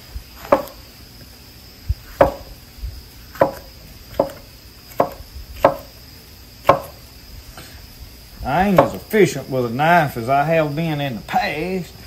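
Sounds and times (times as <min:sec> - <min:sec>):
knife chopping on cutting board: 0:00.4 - 0:00.8, 0:02.2 - 0:02.5, 0:03.3 - 0:05.9, 0:06.6 - 0:07.0, 0:08.8 - 0:09.0.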